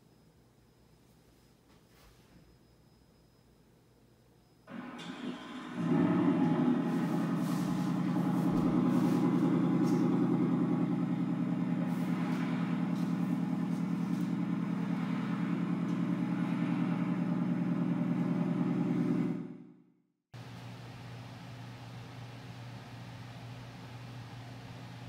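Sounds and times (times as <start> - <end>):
car engine idling with loud exhaust: 4.7 - 19.6.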